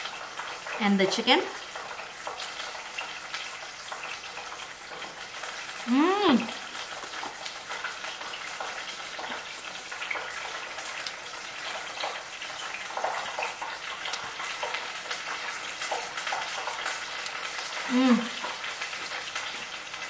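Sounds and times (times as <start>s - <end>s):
crunching while eating: 6.5s - 20.0s.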